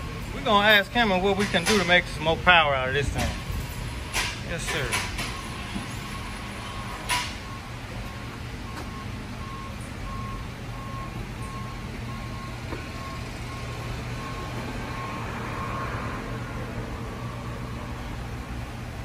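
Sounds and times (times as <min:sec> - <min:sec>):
vehicle reversing alarm beeping: 0:00.0 - 0:18.4.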